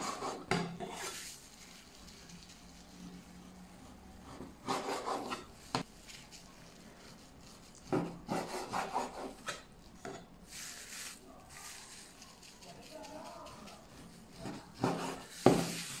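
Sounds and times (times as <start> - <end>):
blade scraping cutting board: 4.2 - 5.8, 7.9 - 10.2, 14.0 - 16.0
cleaver sawing through meat: 8.1 - 9.6, 13.4 - 15.5.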